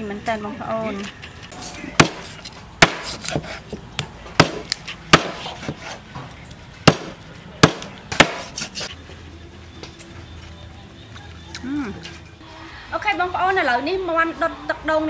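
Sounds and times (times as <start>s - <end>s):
cleaver chopping on a board: 2.0s - 3.6s, 4.4s - 5.8s, 6.8s - 8.8s.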